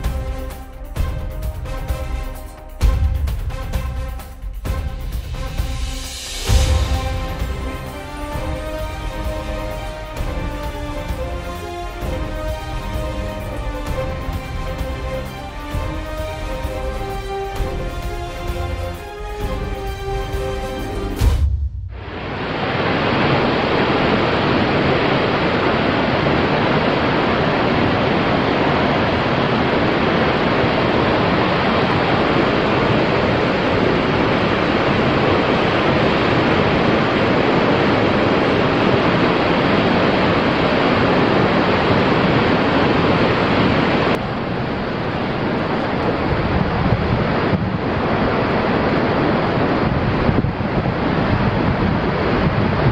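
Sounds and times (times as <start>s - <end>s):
river and waterfall rushing: 0.0s - 21.4s, 22.0s - 52.9s
wind rushing: 0.0s - 52.9s.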